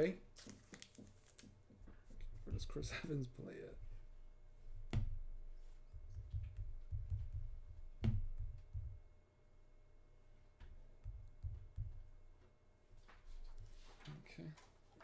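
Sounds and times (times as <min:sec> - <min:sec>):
bumps and knocks at a desk: 0:05.9 - 0:09.0, 0:10.6 - 0:12.1.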